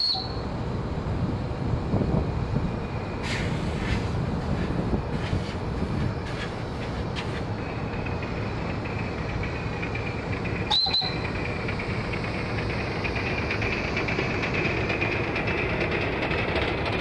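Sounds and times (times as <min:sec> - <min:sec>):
short high whistle: 0:00.0 - 0:00.4, 0:10.7 - 0:11.2
model steam engine rumbling: 0:01.3 - 0:17.0.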